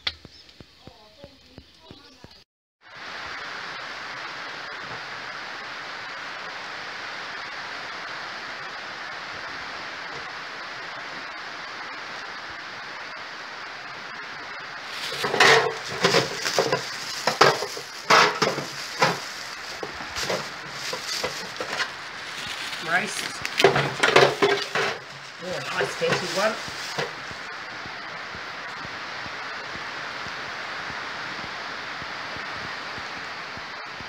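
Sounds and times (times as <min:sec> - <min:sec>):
steady hiss: 0:00.1 - 0:34.0
plastic bag crinkling: 0:14.8 - 0:27.5.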